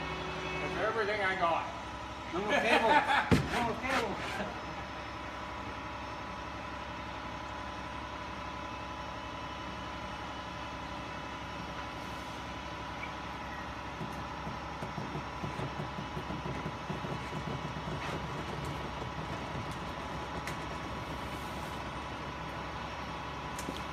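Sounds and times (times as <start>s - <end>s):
steady whine: 0.0s - 7.2s
crane engine running: 0.0s - 23.9s.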